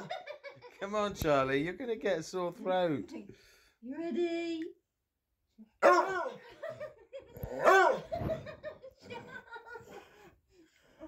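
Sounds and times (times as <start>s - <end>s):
laughter in bursts: 0.0s - 0.8s, 6.3s - 10.3s.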